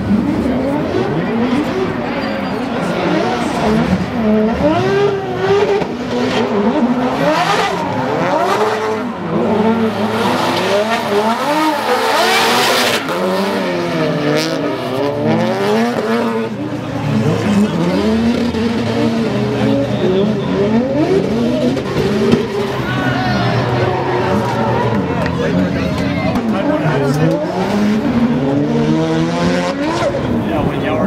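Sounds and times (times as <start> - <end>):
car engines revving: 0.0 - 31.0
tire squeal: 19.4 - 25.5.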